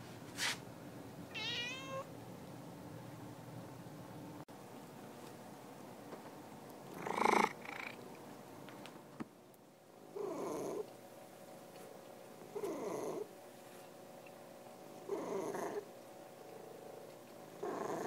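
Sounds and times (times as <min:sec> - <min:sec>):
cat purring: 0:06.9 - 0:08.0, 0:10.1 - 0:10.9, 0:12.4 - 0:13.3, 0:15.0 - 0:15.9, 0:16.5 - 0:18.0.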